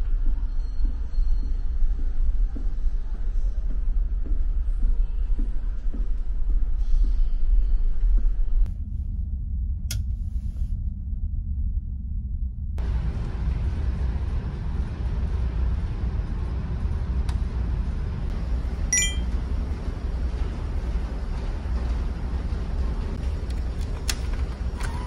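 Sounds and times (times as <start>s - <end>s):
ship engines droning: 12.8s - 25.0s
faint high beeps: 18.9s - 19.3s.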